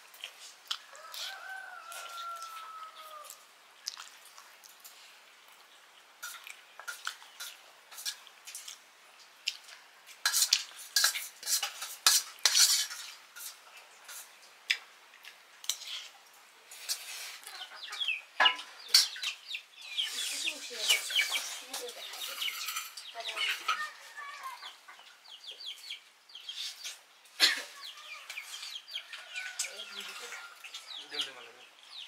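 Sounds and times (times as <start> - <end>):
spoons clinking on steel plates: 10.2 - 14.3, 17.8 - 19.4, 20.8 - 23.8.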